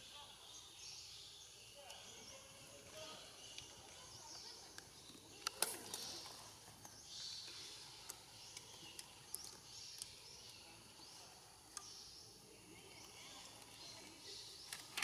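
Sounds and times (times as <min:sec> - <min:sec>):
small clicks: 0:04.7 - 0:07.0.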